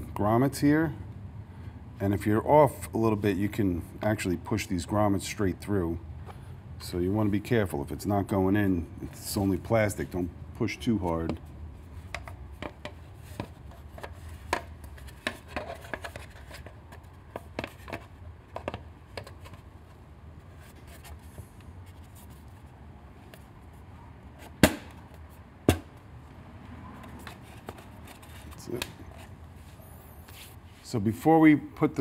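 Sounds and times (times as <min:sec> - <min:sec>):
plastic taps and scrapes: 0:11.1 - 0:19.7, 0:27.0 - 0:29.3.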